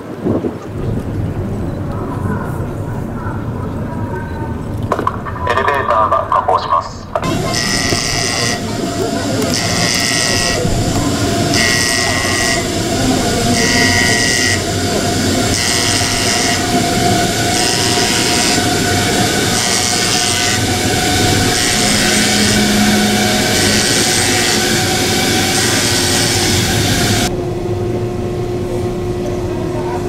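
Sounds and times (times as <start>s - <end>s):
loud background noise: 0.0s - 30.0s
high electronic warning tone: 7.2s - 27.3s.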